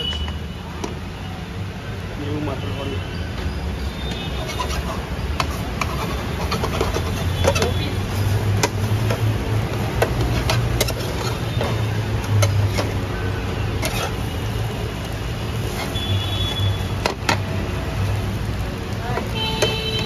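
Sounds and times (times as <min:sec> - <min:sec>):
metal spatula scraping a frying pan: 0:04.3 - 0:09.2, 0:10.0 - 0:13.0, 0:13.7 - 0:14.5, 0:15.5 - 0:17.2.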